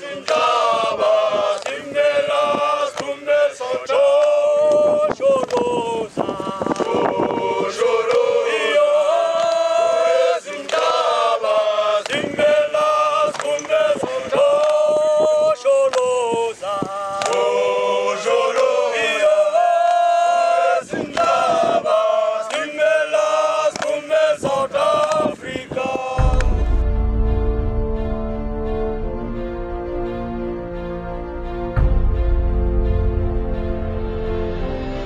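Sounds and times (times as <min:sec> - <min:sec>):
men singing chant: 0:00.0 - 0:27.0
hand claps: 0:00.2 - 0:00.5, 0:01.5 - 0:01.9, 0:02.9 - 0:03.2, 0:04.0 - 0:05.7, 0:08.0 - 0:08.3, 0:09.3 - 0:09.7, 0:10.6 - 0:11.0, 0:12.0 - 0:12.2, 0:13.3 - 0:14.9, 0:15.8 - 0:16.2, 0:17.2 - 0:17.5, 0:18.5 - 0:18.8, 0:19.8 - 0:20.1, 0:21.1 - 0:21.4, 0:22.4 - 0:22.7, 0:23.6 - 0:24.0, 0:25.0 - 0:25.3, 0:26.2 - 0:26.6.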